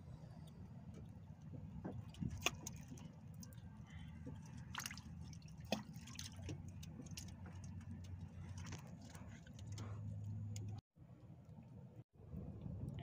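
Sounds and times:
low steady hum: 0.0s - 13.0s
water dripping on deck: 4.3s - 9.8s.

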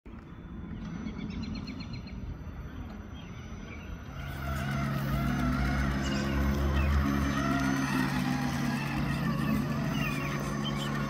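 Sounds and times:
low outdoor rumble: 0.1s - 11.0s
bird chirping: 0.7s - 4.3s, 8.8s - 11.0s.

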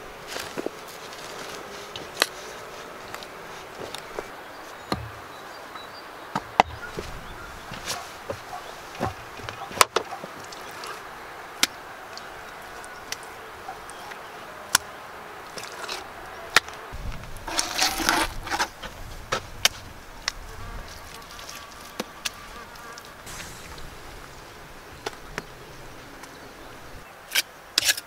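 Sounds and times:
scraping rustle: 0.0s - 4.9s, 6.7s - 11.1s, 15.5s - 26.0s
low rumble: 23.3s - 27.0s.

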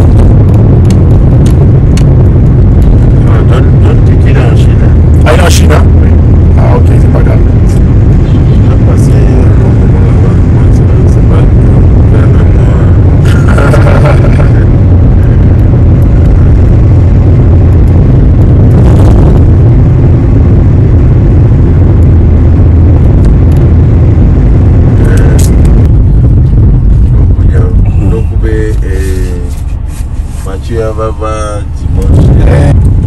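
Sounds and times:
vehicle rumble: 0.0s - 33.0s.

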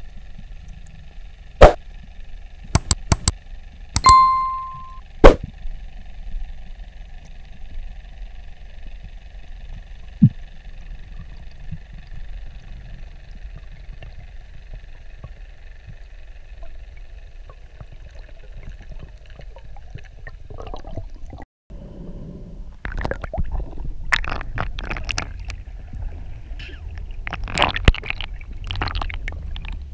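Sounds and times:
irregular water noise: 0.0s - 4.4s, 5.2s - 21.5s, 22.6s - 29.9s
faint steady hum: 0.0s - 29.9s
underwater rumble: 8.8s - 29.9s.

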